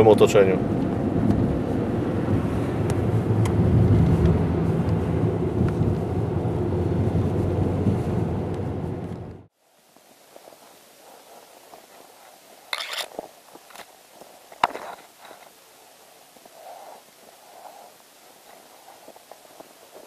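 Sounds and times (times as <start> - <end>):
footsteps crunching through snow: 9.8 - 20.0.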